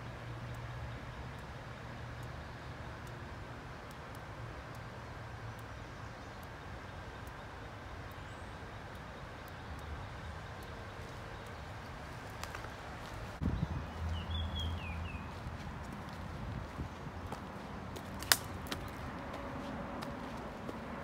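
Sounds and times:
faint ticks: 0.0s - 13.3s
footsteps on dirt trail: 12.0s - 21.0s.

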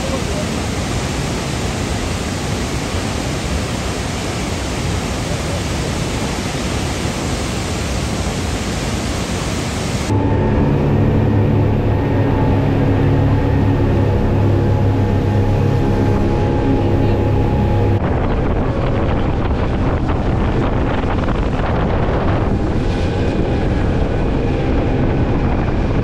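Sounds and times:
steady rushing noise: 0.0s - 26.0s
steady engine hum: 10.0s - 26.0s.

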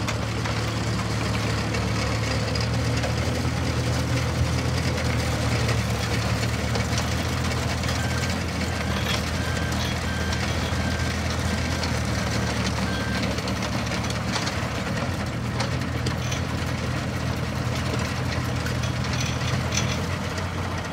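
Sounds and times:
diesel engine running: 0.0s - 20.9s.

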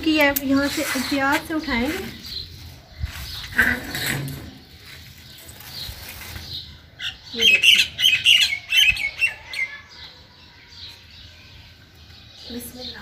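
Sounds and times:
bird squawks and chirps: 6.5s - 11.0s.

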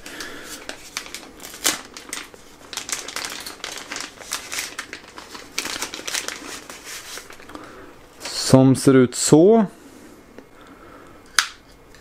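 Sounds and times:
plastic wrapping crinkling: 0.0s - 8.5s.

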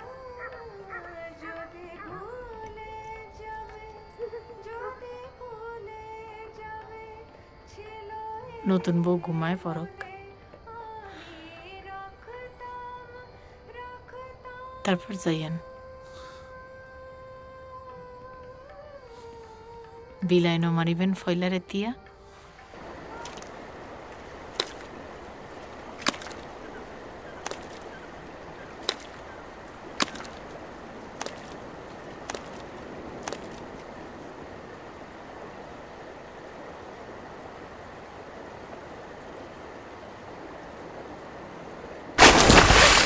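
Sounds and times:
sharp cracks: 28.8s - 30.5s, 42.2s - 43.0s
loud crash: 42.2s - 43.0s.

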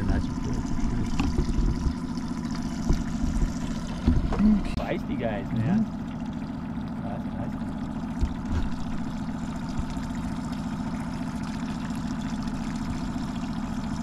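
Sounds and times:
outboard motor running: 0.0s - 14.0s
low thump: 1.0s - 2.0s, 2.7s - 4.5s.

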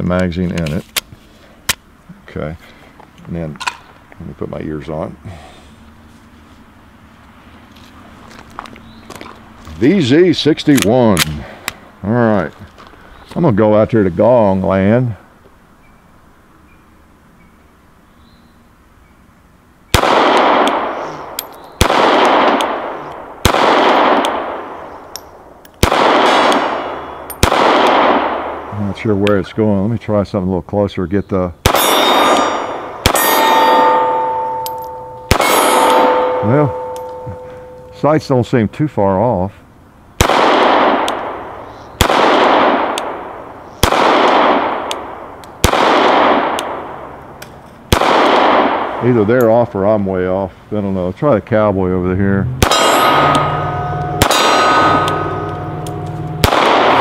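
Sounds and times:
suppressed pistol shots: 19.9s - 24.8s, 25.8s - 28.7s, 31.6s - 37.8s, 40.2s - 47.2s, 47.9s - 49.0s, 52.6s - 57.0s
gunshots with echo: 20.0s - 24.8s, 25.8s - 28.8s, 31.6s - 37.8s, 40.2s - 47.2s, 47.9s - 49.3s, 52.5s - 57.0s.

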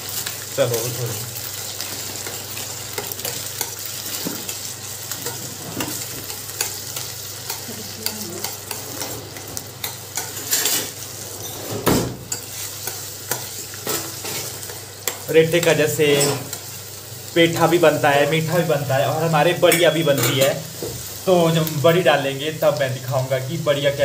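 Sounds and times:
gourd frying in ghee: 0.0s - 24.0s
metal spoon scraping pan: 5.2s - 11.7s.

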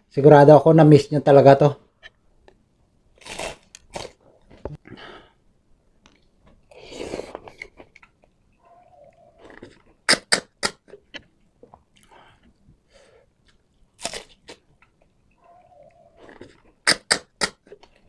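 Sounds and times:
sharp sucking of snail shells: 3.2s - 4.2s, 9.5s - 10.8s, 16.2s - 17.8s
wet chewing and slurping: 9.2s - 12.6s, 13.3s - 18.0s.

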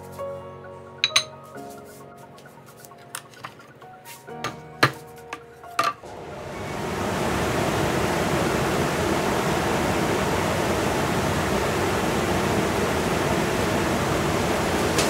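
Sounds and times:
blower rush of air: 6.0s - 15.0s.

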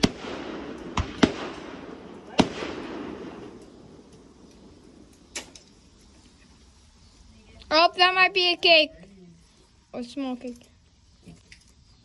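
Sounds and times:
rumbling echo: 0.0s - 5.0s
fireworks bangs: 0.0s - 5.6s.

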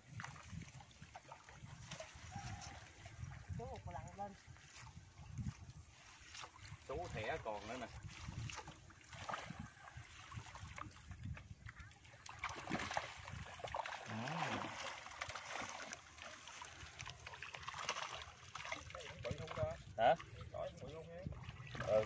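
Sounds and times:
pond water splashing: 0.0s - 22.0s
fish thrashing in net: 12.3s - 18.9s.

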